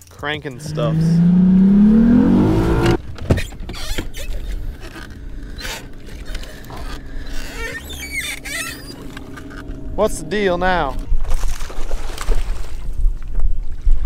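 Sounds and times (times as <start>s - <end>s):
low steady hum: 0.2s - 13.1s
short wavering squeak: 3.4s - 9.9s.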